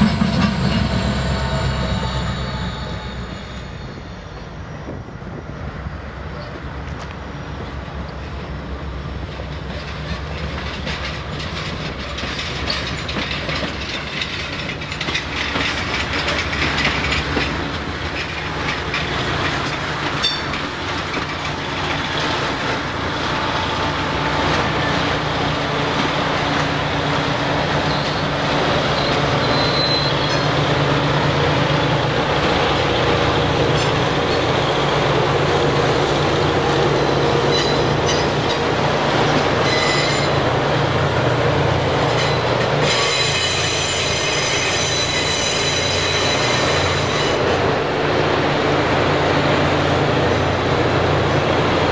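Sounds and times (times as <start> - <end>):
train wheels clicking over rail joints: 6.3 - 40.8.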